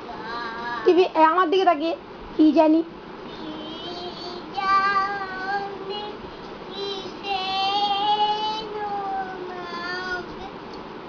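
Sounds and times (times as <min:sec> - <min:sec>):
girl singing: 0:00.0 - 0:00.9, 0:03.3 - 0:10.6.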